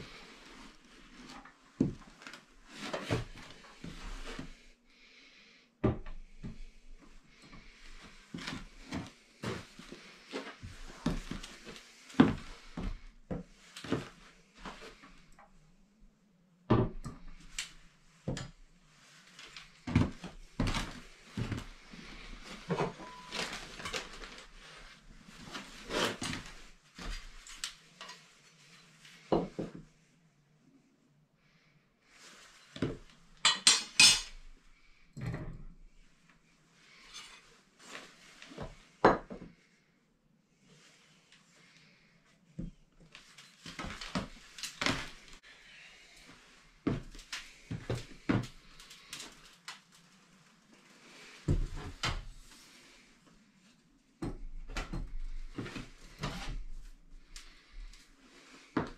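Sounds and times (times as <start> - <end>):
metallic clanks and scrapes: 33.5 - 34.4.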